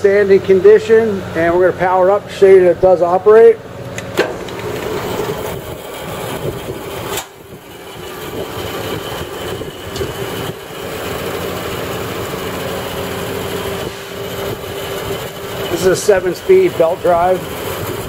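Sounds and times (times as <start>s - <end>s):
band saw motor humming: 3.6s - 18.0s.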